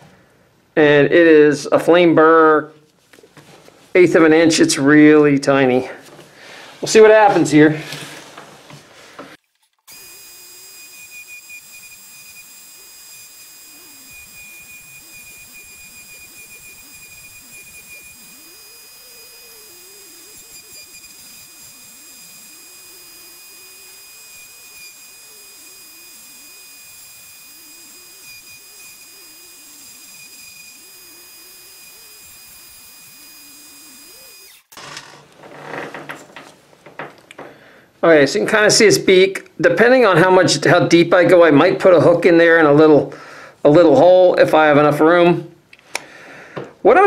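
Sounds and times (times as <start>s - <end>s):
rotary tool carving wood: 9.6s - 37.0s
rotary tool whining: 9.7s - 37.5s.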